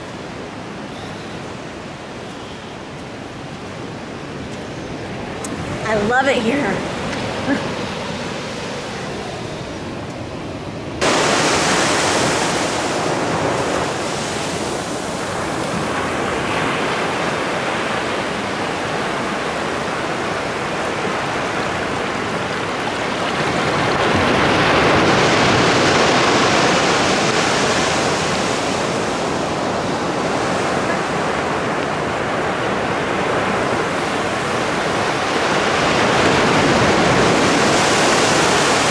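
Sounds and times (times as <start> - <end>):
ocean waves washing in: 0.0 - 38.9
wind: 0.0 - 38.9.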